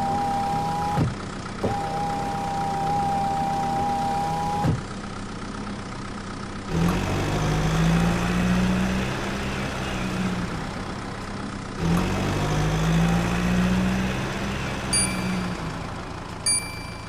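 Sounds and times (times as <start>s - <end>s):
short high chime: 15.0s - 15.8s, 16.4s - 17.0s.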